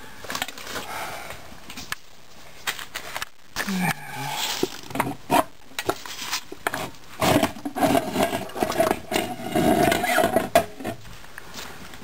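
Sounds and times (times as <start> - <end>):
scraping and rubbing of metal parts: 4.4 - 11.1.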